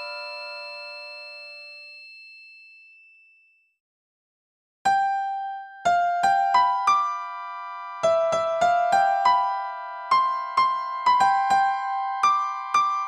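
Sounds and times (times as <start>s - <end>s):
simple piano melody: 0.0s - 1.8s, 4.9s - 13.0s.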